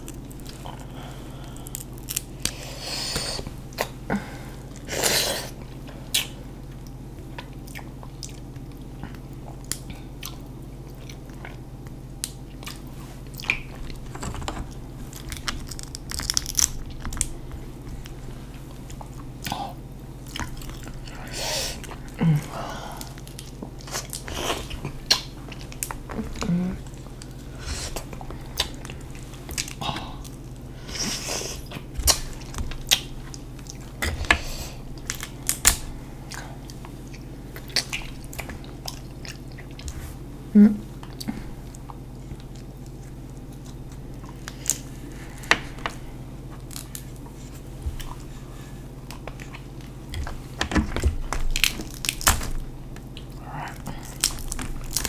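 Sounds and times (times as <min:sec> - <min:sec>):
crab shells cracking: 0:00.0 - 0:02.6, 0:13.4 - 0:17.4, 0:35.0 - 0:35.9, 0:49.1 - 0:55.0
chewing: 0:00.0 - 0:04.0, 0:04.6 - 0:40.2, 0:41.0 - 0:55.0.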